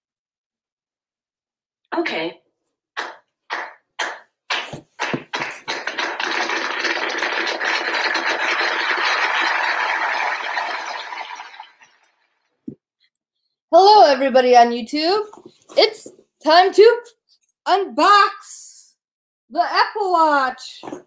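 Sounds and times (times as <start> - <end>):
people clapping: 3.0 - 11.8.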